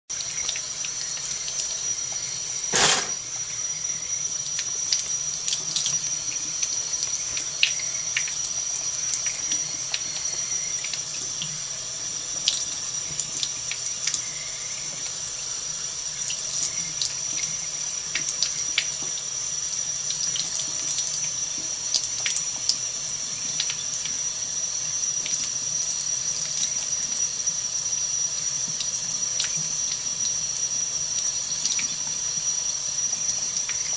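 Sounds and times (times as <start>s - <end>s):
water splashing on metal grate: 2.7s - 3.2s.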